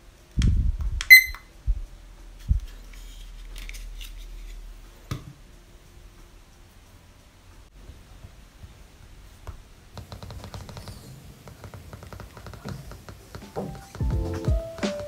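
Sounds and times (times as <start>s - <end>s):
music: 0.0s - 7.7s, 13.2s - 15.0s.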